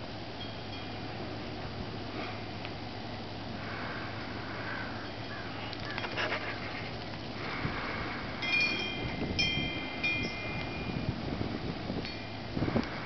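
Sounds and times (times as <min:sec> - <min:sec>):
steady wind hiss: 0:00.0 - 0:13.0
wind chimes ringing: 0:00.4 - 0:01.2, 0:08.4 - 0:11.2, 0:12.0 - 0:12.6
patter of clicks: 0:05.6 - 0:07.4.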